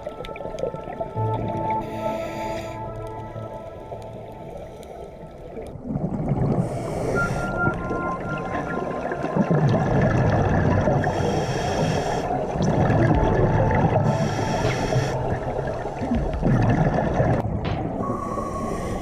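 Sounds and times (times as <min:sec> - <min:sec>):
water and bubble noise: 0:00.0 - 0:19.0
hissing breaths through regulator: 0:01.8 - 0:03.1, 0:06.6 - 0:07.8, 0:11.0 - 0:12.4, 0:14.0 - 0:15.6, 0:18.0 - 0:19.0.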